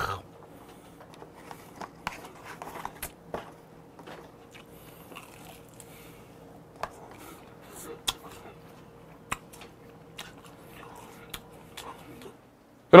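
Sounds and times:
fried chicken crunching: 4.5 - 6.1.

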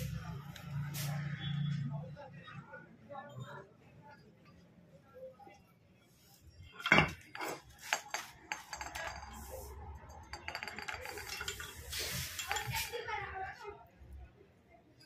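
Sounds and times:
metal parts clinking and knocking: 6.8 - 12.9.

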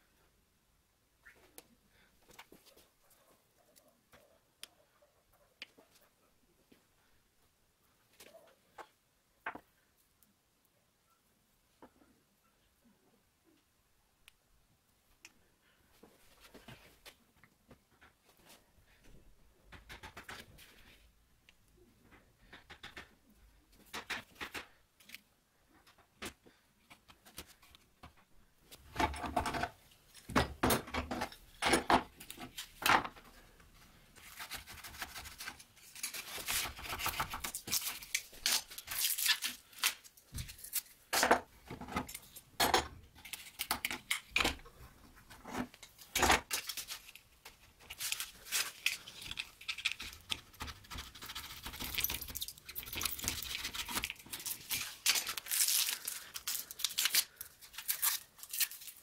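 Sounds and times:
masking tape rustling: 31.3 - 42.5, 43.1 - 59.0.

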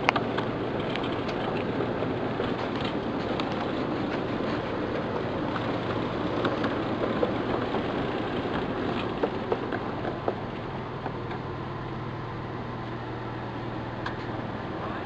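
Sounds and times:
train wheels clicking and knocking: 0.0 - 11.5
low engine hum: 0.0 - 15.0.

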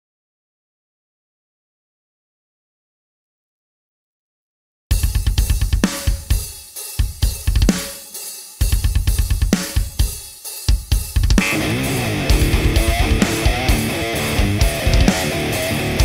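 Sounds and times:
heavy metal drums: 4.9 - 16.0
distorted electric guitar: 11.3 - 16.0.

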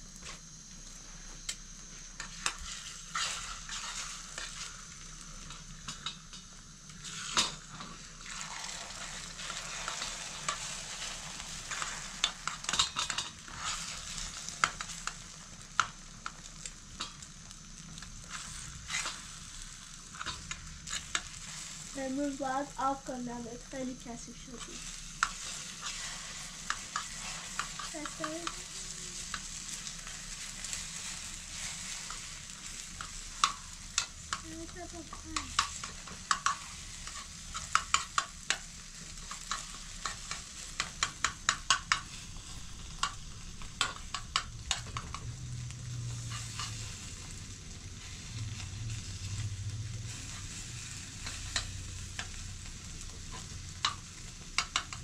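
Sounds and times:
food sizzling in a pan: 0.0 - 55.0
metal spoon scraping a pan: 2.2 - 4.7, 24.6 - 32.3, 46.2 - 46.9.

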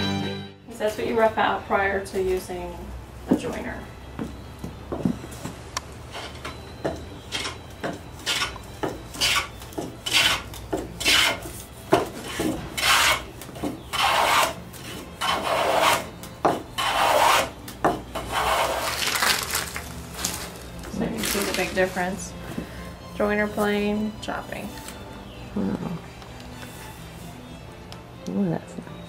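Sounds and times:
plane shaving wood: 8.2 - 22.2.

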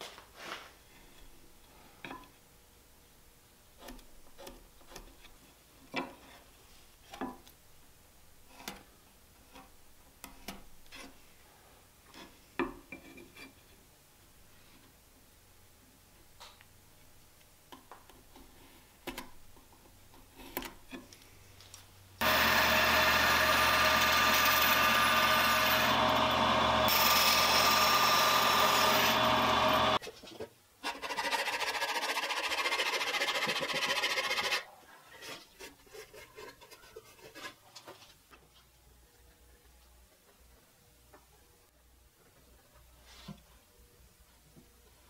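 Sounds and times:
bandsaw cutting wood: 22.2 - 30.0.

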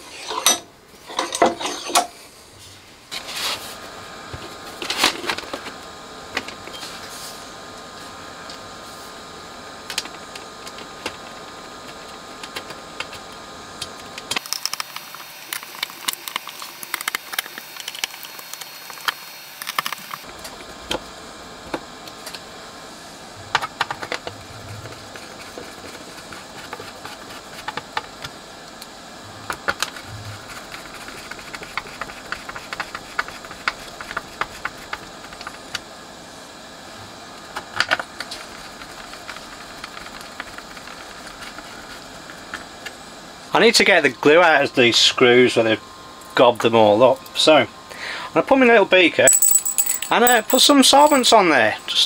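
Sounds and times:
tools and metal parts rattling: 49.3 - 51.4.

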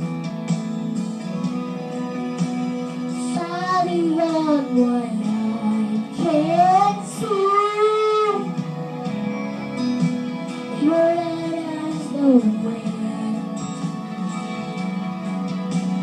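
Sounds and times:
music backing track: 0.0 - 16.0
child singing into microphone: 3.2 - 8.6, 10.7 - 13.5.

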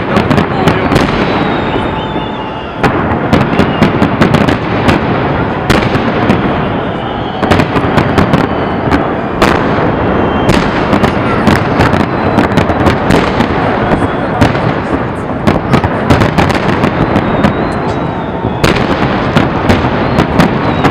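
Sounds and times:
fireworks bursting and crackling: 0.0 - 20.9
loud firework reports: 0.0 - 20.9.

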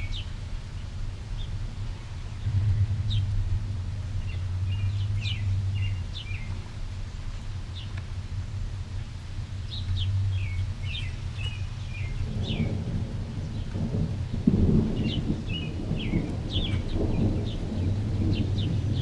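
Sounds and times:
distant thunder rumbling: 1.6 - 9.2, 10.0 - 19.0
small birds chirping: 4.2 - 8.1, 8.9 - 19.0.

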